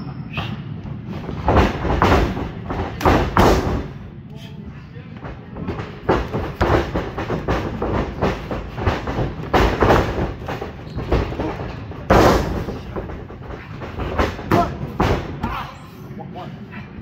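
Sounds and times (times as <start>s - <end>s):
bodies thumping on ring canvas: 1.1s - 4.0s, 5.6s - 15.7s.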